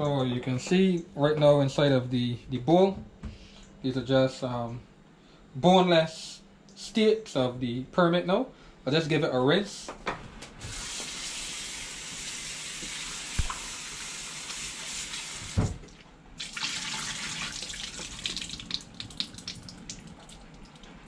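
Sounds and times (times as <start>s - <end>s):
tap water running into bowl: 16.4s - 21.0s.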